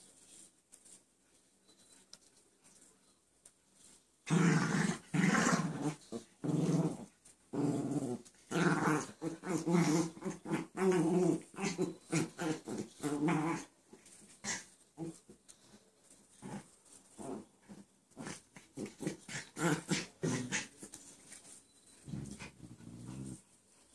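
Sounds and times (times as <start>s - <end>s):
small dog growling: 4.3s - 13.7s, 16.4s - 20.8s, 22.1s - 23.4s.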